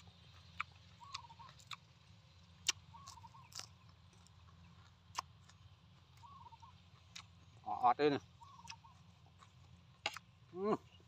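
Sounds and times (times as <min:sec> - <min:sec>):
chewing food: 0:00.0 - 0:11.0
faint bird calls: 0:00.9 - 0:01.7, 0:02.7 - 0:03.9, 0:06.1 - 0:07.0, 0:07.6 - 0:09.2.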